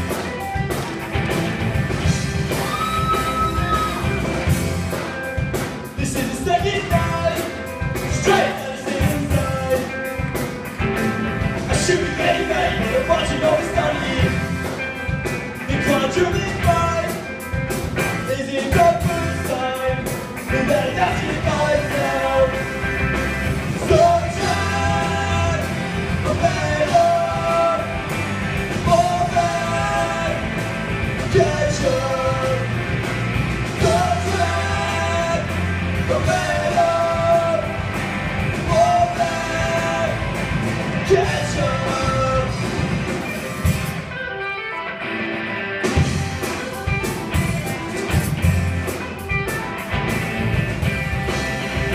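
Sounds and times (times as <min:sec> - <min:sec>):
rock band playing: 0:00.0 - 0:51.9
person singing: 0:06.0 - 0:10.1, 0:11.7 - 0:14.4, 0:18.2 - 0:22.8, 0:23.8 - 0:28.0, 0:28.8 - 0:30.6, 0:31.2 - 0:32.8, 0:33.8 - 0:37.8, 0:38.6 - 0:40.4, 0:41.0 - 0:42.7.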